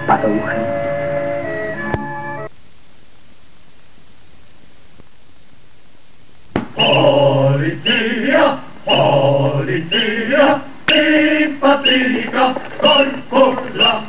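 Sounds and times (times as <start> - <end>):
voices chanting: 6.7 - 14.0.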